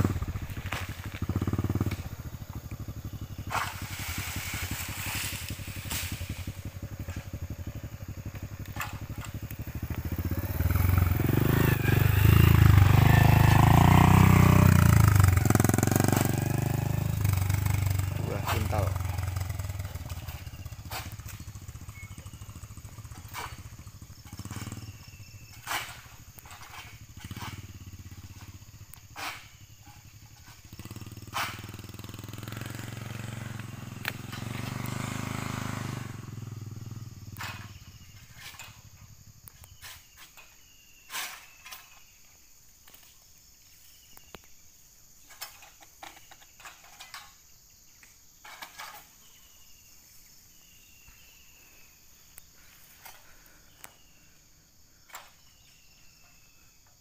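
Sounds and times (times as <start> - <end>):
motorcycle engine running: 0.0 - 39.8.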